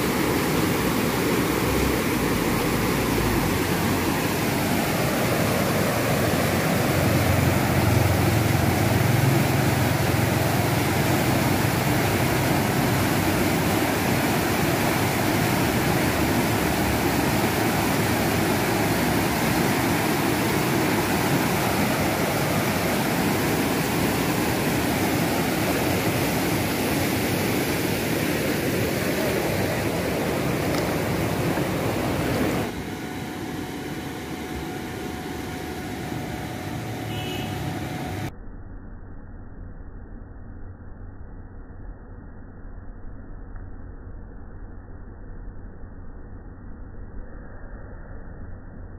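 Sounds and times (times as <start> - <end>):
river water rushing: 0.0 - 38.3.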